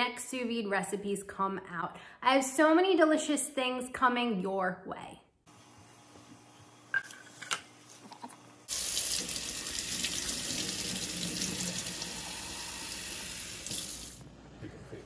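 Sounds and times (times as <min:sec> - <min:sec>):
kitchen faucet running: 0:08.7 - 0:14.2.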